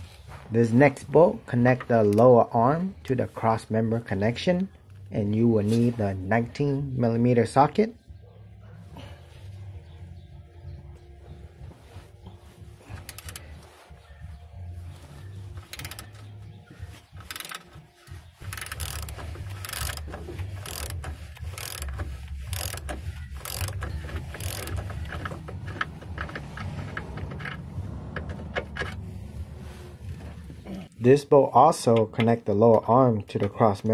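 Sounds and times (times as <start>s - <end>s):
ratchet wrench clicking: 13.0s - 13.4s, 15.6s - 16.2s, 17.2s - 17.7s, 18.4s - 27.6s
low rumble: 25.0s - 30.9s.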